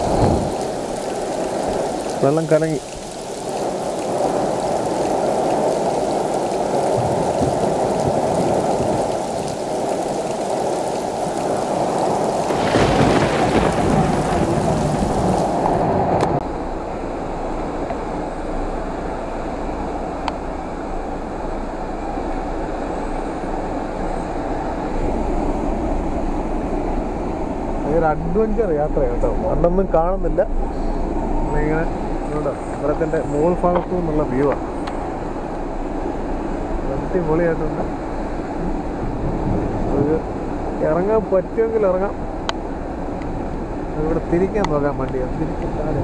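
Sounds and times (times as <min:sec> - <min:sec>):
heavy rain on a car: 0:00.0 - 0:16.4
heavy rain: 0:00.0 - 0:46.0
stream rushing: 0:00.0 - 0:46.0
car driving slowly: 0:13.9 - 0:46.0.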